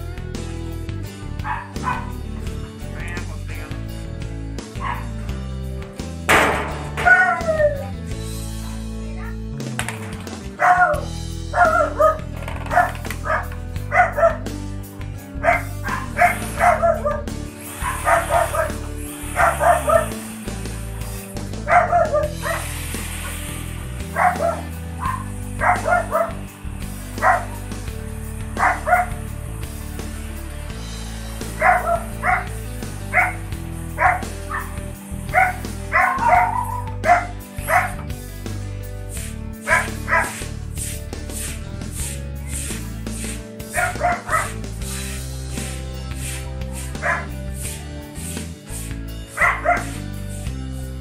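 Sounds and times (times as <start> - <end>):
background music with bass notes: 0.0 - 51.0
dog barking yips: 1.5 - 2.1, 4.8 - 5.1, 7.0 - 7.9, 10.6 - 14.4, 15.4 - 17.2, 17.8 - 18.8, 19.4 - 20.2, 21.7 - 22.6, 24.1 - 26.4, 27.2 - 27.6, 28.6 - 29.1, 31.6 - 32.5, 33.1 - 33.4, 34.0 - 34.7, 35.3 - 38.0, 39.7 - 40.4, 43.8 - 44.6, 47.0 - 47.3, 49.4 - 50.0.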